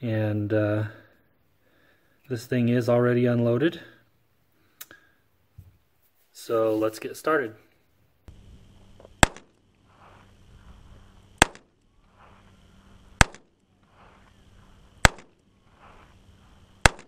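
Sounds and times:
revolver gunshots: 0:09.2 - 0:09.6, 0:11.4 - 0:11.8, 0:13.0 - 0:13.5, 0:15.0 - 0:15.4, 0:16.8 - 0:17.0.

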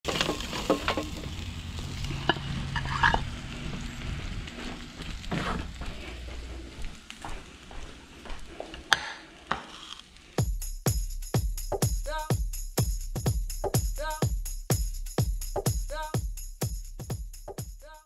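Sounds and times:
steak sizzling on a grill: 0:00.1 - 0:10.4
spatula scraping metal grate: 0:02.0 - 0:03.3.

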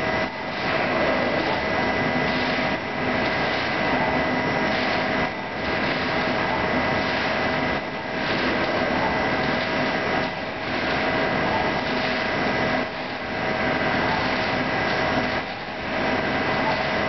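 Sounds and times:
lathe machine hum: 0:00.0 - 0:17.0
coolant spray hiss: 0:00.4 - 0:17.0.

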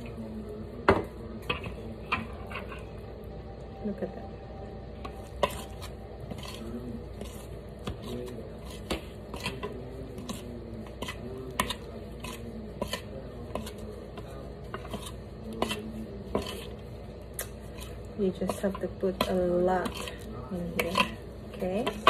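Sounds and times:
spoon scraping glass bowl: 0:01.6 - 0:03.0, 0:05.0 - 0:16.9, 0:17.6 - 0:21.2.

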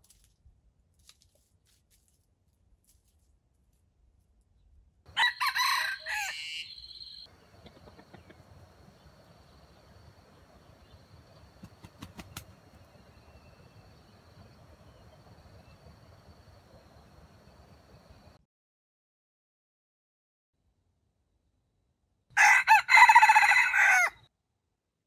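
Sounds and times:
rooster crowing: 0:05.1 - 0:08.4, 0:22.4 - 0:24.3.

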